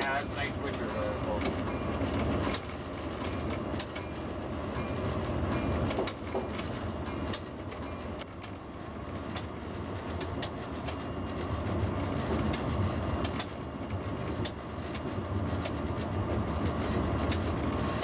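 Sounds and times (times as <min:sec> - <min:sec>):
locomotive cab low drone: 0:00.0 - 0:18.0
wheel clicks over rail joints: 0:05.8 - 0:08.6.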